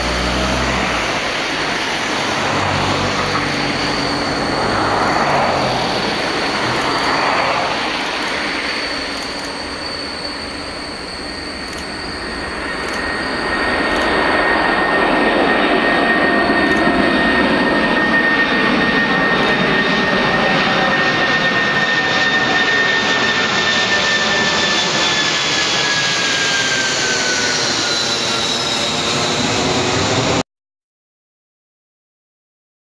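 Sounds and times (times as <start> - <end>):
high jet whine: 0.0 - 30.4
jet engine roar: 0.0 - 30.4.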